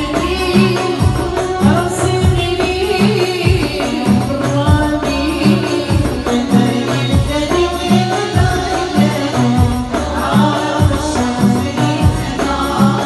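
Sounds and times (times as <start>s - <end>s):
low percussion beat: 0.0s - 13.0s
woman singing: 0.0s - 13.0s.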